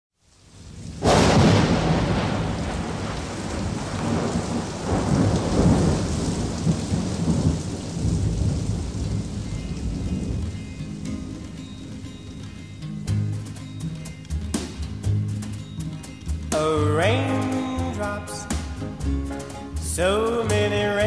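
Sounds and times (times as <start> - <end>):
steady heavy rain: 0.2 - 21.0
rolling thunder: 0.6 - 11.9
sharp thunder clap: 0.8 - 11.4.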